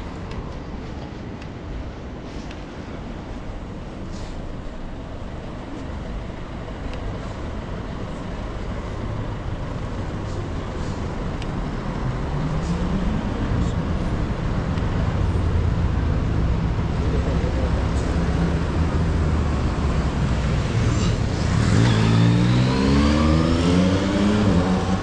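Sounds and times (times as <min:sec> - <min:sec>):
city street traffic rumble: 0:00.0 - 0:25.0
vehicle engine hum: 0:00.0 - 0:25.0.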